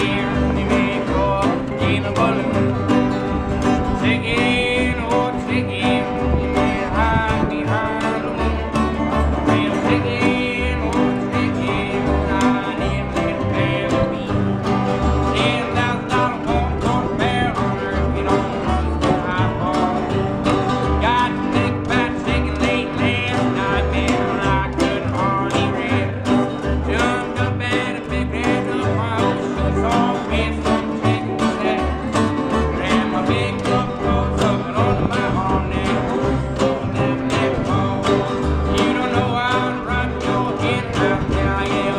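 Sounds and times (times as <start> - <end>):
fiddle: 0.0 - 41.9
resonator guitar: 0.0 - 41.9
strummed acoustic guitars: 0.0 - 41.9
upright double bass: 0.0 - 41.9.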